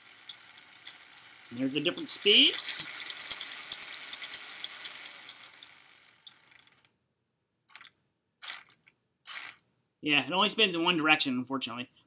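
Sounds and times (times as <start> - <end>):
robot spinning weapon rattling: 0.0 - 6.9, 7.7 - 9.6.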